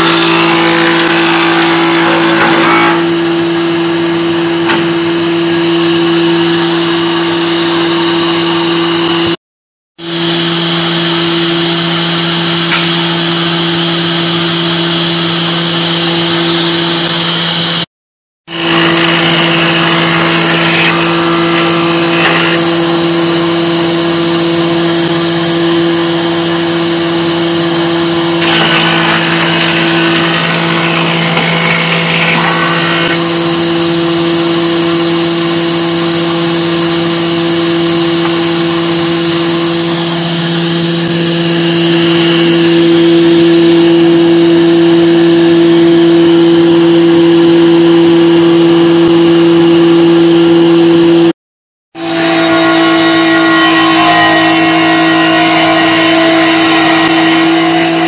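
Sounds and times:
planer cutting hiss: 0.0s - 7.4s, 10.0s - 17.8s, 18.5s - 25.3s, 27.6s - 33.4s, 38.2s - 44.2s, 52.0s - 58.0s
woodworking machine motor hum: 0.0s - 9.4s, 10.1s - 17.8s, 18.5s - 47.8s, 52.0s - 58.0s.

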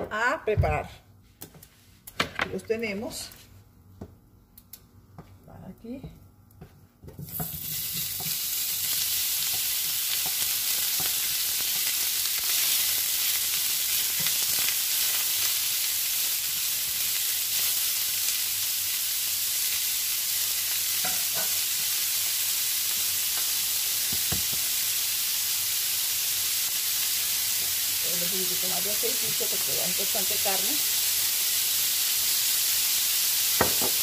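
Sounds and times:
meat sizzling in frying pan: 7.3s - 34.0s.

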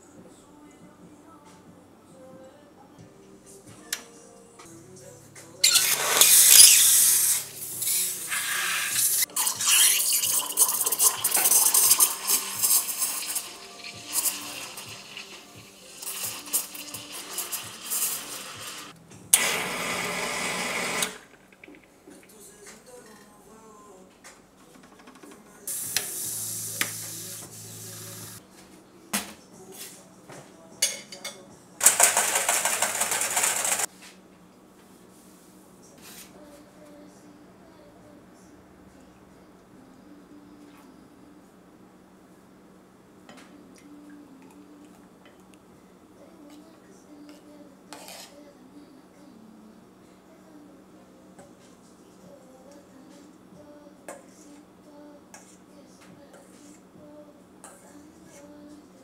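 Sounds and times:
steam wand frothing milk: 5.7s - 21.2s.

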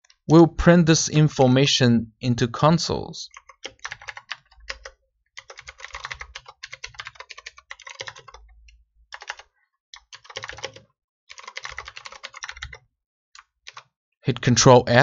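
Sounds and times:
typing on computer keyboard: 3.3s - 13.9s.

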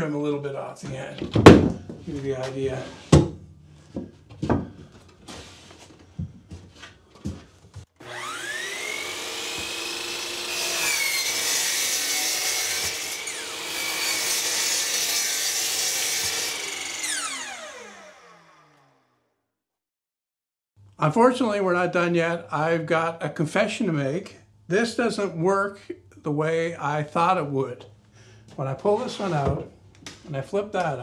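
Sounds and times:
miter saw whining and cutting: 8.0s - 19.2s.

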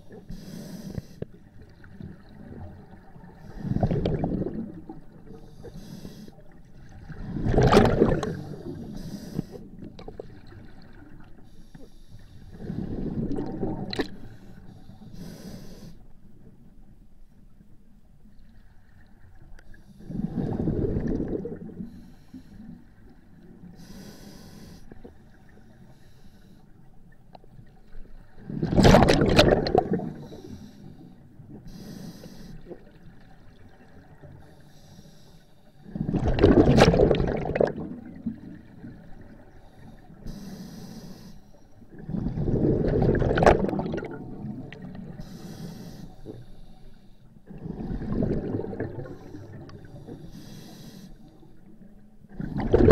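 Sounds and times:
bursts of exhaled bubbles: 3.6s - 4.9s, 7.1s - 8.5s, 20.1s - 21.8s, 28.4s - 30.3s, 35.9s - 38.3s, 42.0s - 44.8s, 47.6s - 49.1s, 52.3s - 52.9s
air hissing through regulator: 45.2s - 47.1s.

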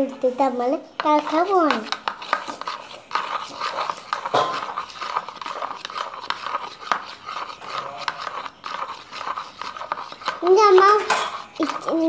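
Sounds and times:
spoon scraping plastic bowl: 0.0s - 12.0s.

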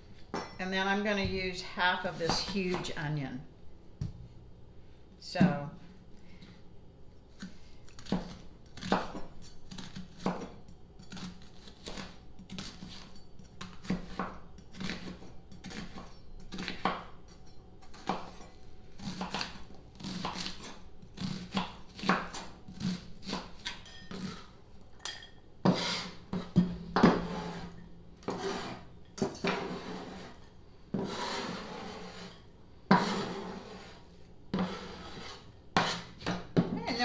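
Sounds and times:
knife chopping on wooden board: 8.0s - 10.5s, 19.1s - 23.8s, 34.5s - 36.7s.

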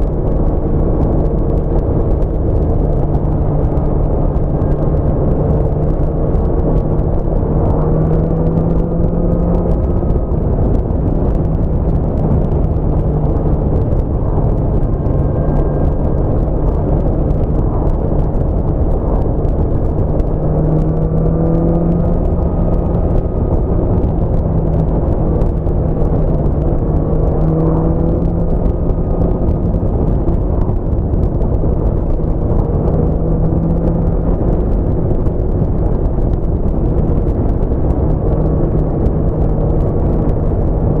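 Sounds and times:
motorcycle engine cruising: 0.0s - 41.0s
wind rush on microphone: 0.0s - 41.0s.

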